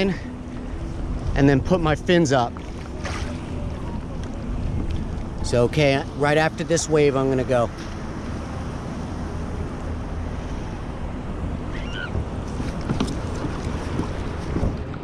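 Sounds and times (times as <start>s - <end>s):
water sloshing against hull: 0.0s - 5.4s, 11.8s - 15.0s
light knocks and splashes: 2.5s - 3.5s
wind buffeting microphone: 10.0s - 15.0s.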